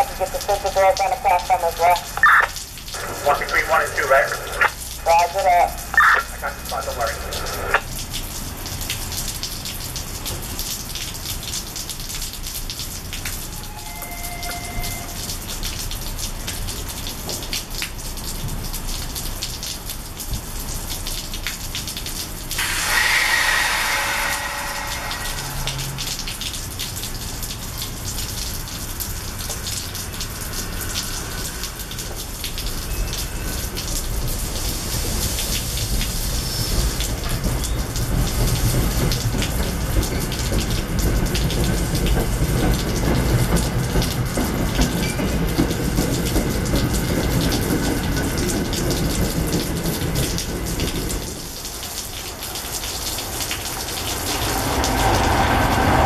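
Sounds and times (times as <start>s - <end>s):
train low rumble: 0.0s - 8.9s, 22.1s - 56.0s
steady rain falling: 0.0s - 56.0s
loud hiss: 22.6s - 26.2s.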